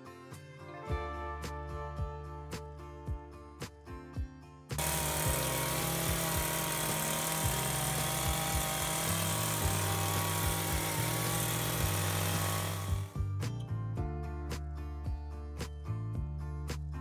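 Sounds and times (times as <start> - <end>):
hedge trimmer running: 4.8 - 13.2.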